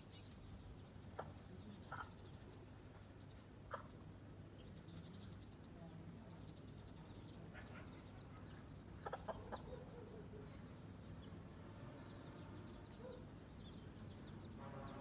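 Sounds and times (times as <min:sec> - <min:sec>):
low steady hum: 0:00.0 - 0:15.0
chicks peeping: 0:01.0 - 0:04.0, 0:07.2 - 0:10.0
hen clucking: 0:01.1 - 0:02.3, 0:03.6 - 0:04.0, 0:07.5 - 0:10.0.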